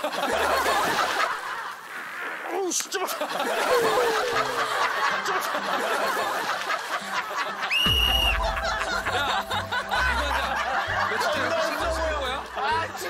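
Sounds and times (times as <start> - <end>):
people laughing: 0.0 - 2.1, 2.8 - 13.0
low boom: 7.9 - 10.3.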